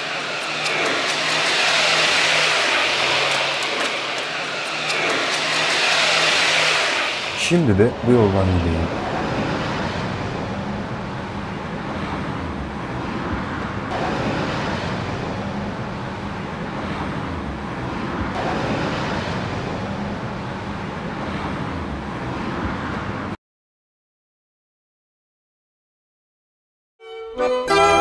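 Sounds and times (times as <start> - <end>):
road traffic noise: 0.0 - 23.4.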